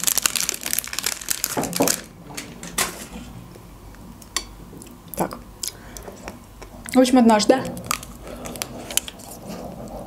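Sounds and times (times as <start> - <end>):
plastic wrapper rustling: 0.0 - 2.1.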